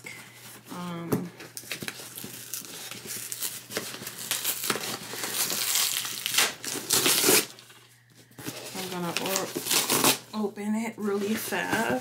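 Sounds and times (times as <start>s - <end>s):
tape strip crinkling: 1.4s - 7.9s, 8.5s - 10.3s
packing tape peeling off box: 1.6s - 7.7s, 8.5s - 10.3s.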